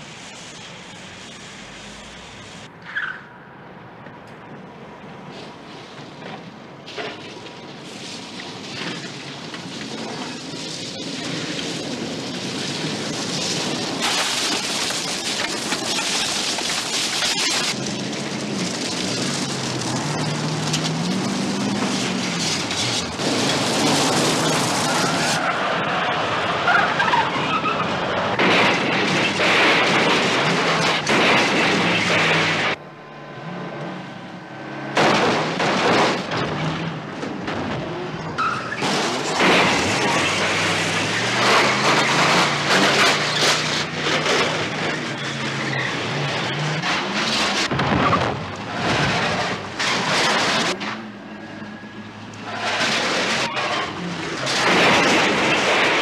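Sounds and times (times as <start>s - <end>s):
tyres on gravel: 6.0s - 32.8s, 34.9s - 56.0s
car engines revving high: 11.2s - 56.0s.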